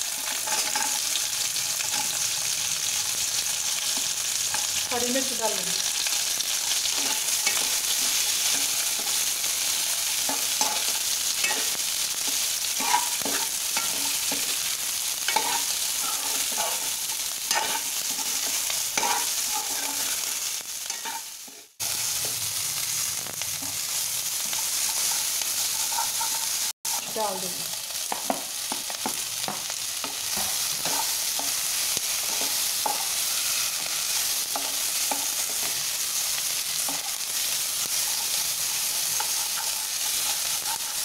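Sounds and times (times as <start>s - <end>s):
onions sizzling in hot oil: 0.0s - 41.0s
spoon scraping a pan: 0.1s - 1.2s, 6.7s - 22.4s, 23.6s - 27.1s, 28.0s - 35.9s, 36.5s - 41.0s.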